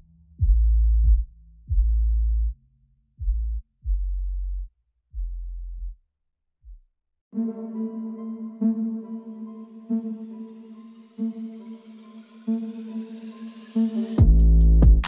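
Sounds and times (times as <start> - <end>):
deep bass notes: 0.0 - 6.0, 14.2 - 15.0.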